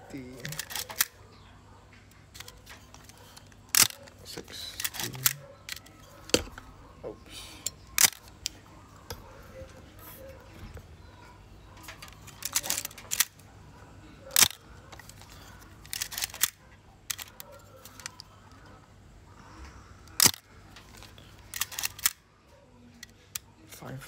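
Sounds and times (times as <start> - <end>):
small mechanical camera clicks: 2.3 - 4.0, 14.4 - 18.3, 20.1 - 20.5, 21.4 - 22.2.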